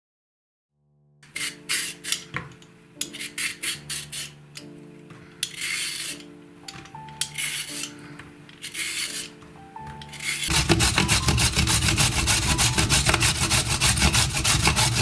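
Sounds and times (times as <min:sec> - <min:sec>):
background music: 0:01.0 - 0:15.0
peeler scraping carrot: 0:01.3 - 0:02.3, 0:03.0 - 0:04.7, 0:05.4 - 0:09.4, 0:10.0 - 0:15.0.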